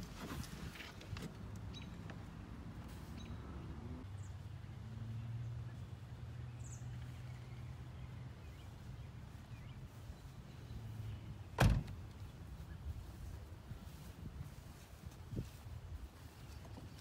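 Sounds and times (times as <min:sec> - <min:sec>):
car door slamming: 0:11.6 - 0:12.0.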